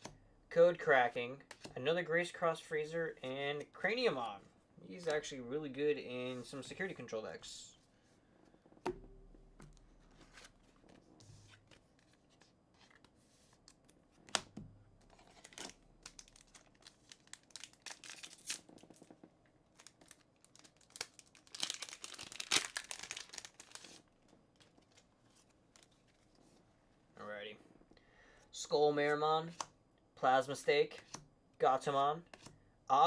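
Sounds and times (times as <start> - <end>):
wrapper tearing open: 15.1 - 19.0, 19.8 - 24.0
foil pack crinkling: 15.1 - 19.1, 19.8 - 24.0.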